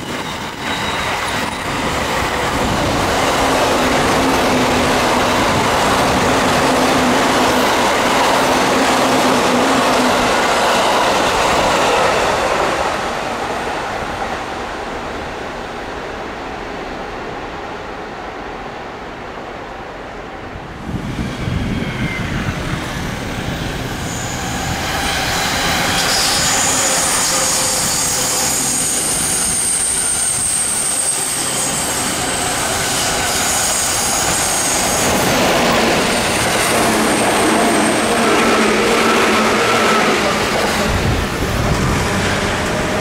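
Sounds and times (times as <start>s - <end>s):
train wheels rumbling on rails: 0.0s - 16.6s, 20.6s - 43.0s
high-pitched wheel squeal: 21.2s - 35.1s.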